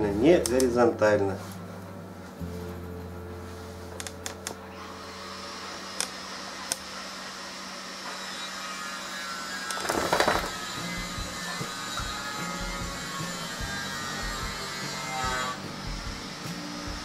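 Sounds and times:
power drill droning: 0:04.9 - 0:16.2.

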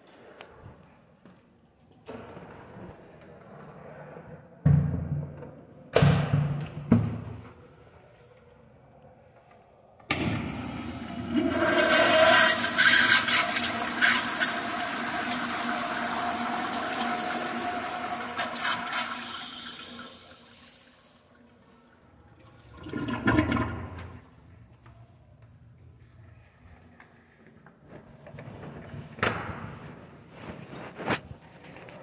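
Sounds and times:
toilet flushing: 0:10.1 - 0:24.4.

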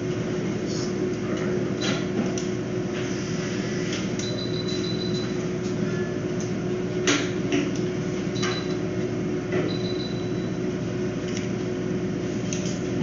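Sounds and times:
steady machine hum: 0:00.0 - 0:13.0.

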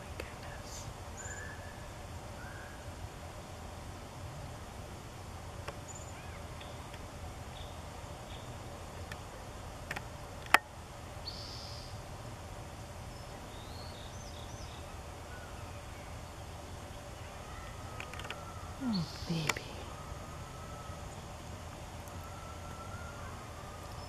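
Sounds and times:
small birds chirping: 0:00.0 - 0:03.0, 0:11.2 - 0:12.0, 0:12.9 - 0:24.0.

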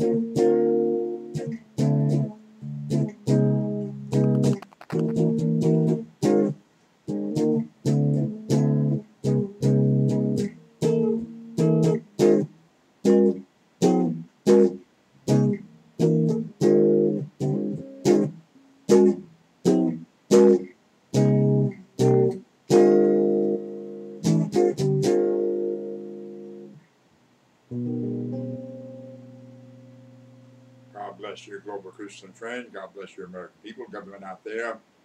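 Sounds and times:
guitar chords strummed: 0:00.0 - 0:26.8, 0:27.7 - 0:32.7.

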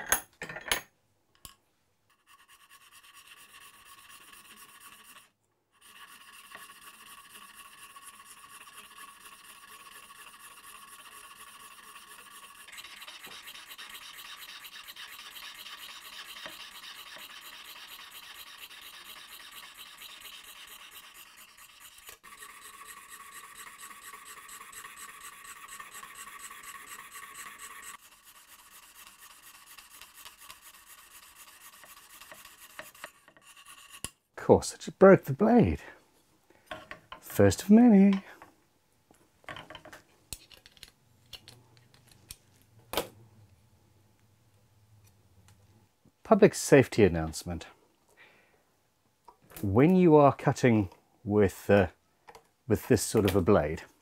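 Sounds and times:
saw rasping through shell: 0:02.1 - 0:34.2.

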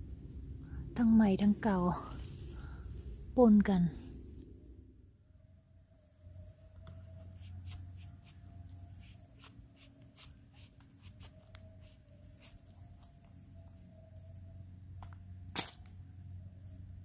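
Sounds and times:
knife cutting fungus: 0:07.3 - 0:13.1.

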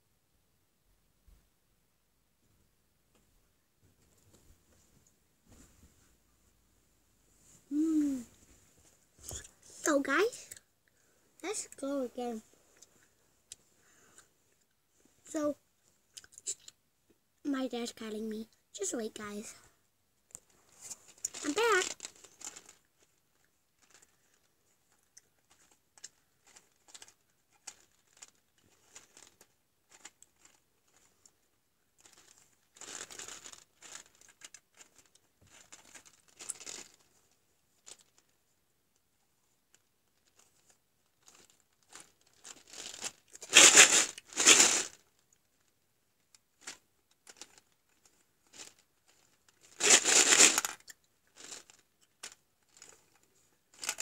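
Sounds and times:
short rustling bursts: 0:20.6 - 0:22.8, 0:42.4 - 0:45.0, 0:48.5 - 0:50.7.

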